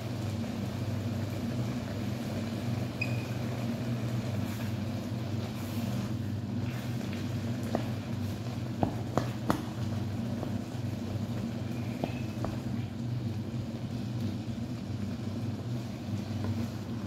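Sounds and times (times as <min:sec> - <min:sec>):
low mechanical hum: 0:00.0 - 0:17.0
meat frying in a pan: 0:00.0 - 0:17.0
wooden spatula stirring: 0:04.3 - 0:12.8, 0:15.8 - 0:17.0.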